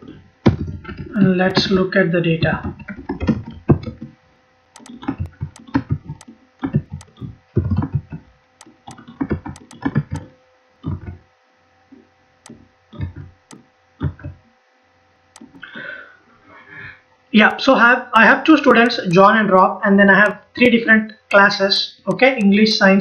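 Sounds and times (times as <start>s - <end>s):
keyboard typing: 2.4s - 4.1s, 4.8s - 11.2s, 12.4s - 14.4s, 15.4s - 15.7s, 18.8s - 19.3s
mouse clicks: 4.8s - 10.3s, 15.4s - 15.7s.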